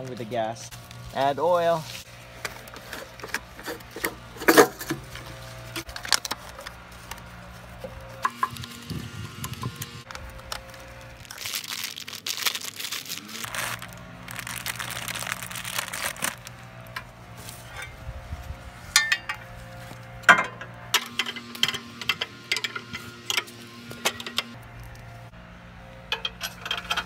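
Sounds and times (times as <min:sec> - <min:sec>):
plastic bag crinkling: 0:05.2 - 0:16.9.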